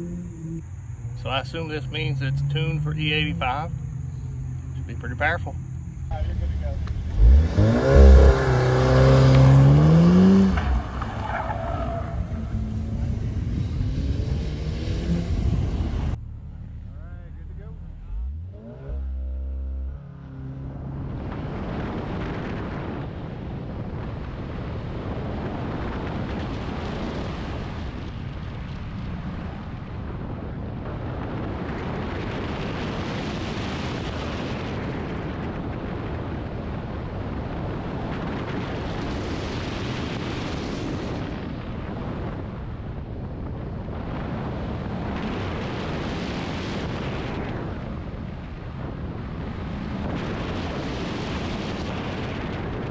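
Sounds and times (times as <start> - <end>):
car engine: 0.0 - 24.5
wind buffeting microphone: 5.2 - 16.2, 20.0 - 52.9.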